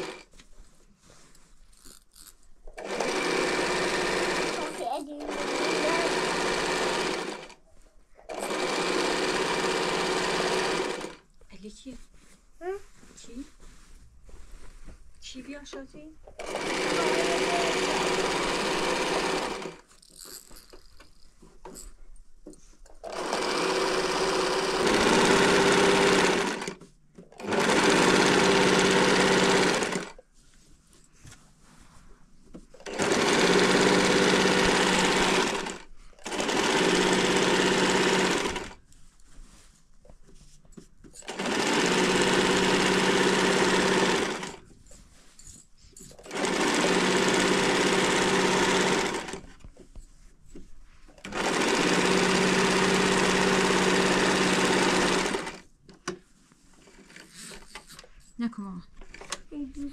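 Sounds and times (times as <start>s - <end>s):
electric sewing machine stitching: 0.0s - 0.3s, 2.2s - 7.6s, 8.3s - 11.3s, 16.3s - 20.6s, 23.0s - 30.2s, 32.8s - 38.8s, 41.2s - 44.6s, 46.2s - 49.6s, 51.2s - 55.7s.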